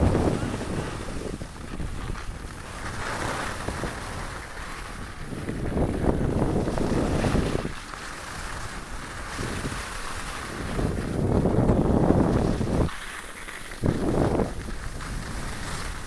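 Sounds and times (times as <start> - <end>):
wind rushing over microphone: 0.0 - 13.0, 13.7 - 16.0
skis sliding on snow: 0.0 - 16.0.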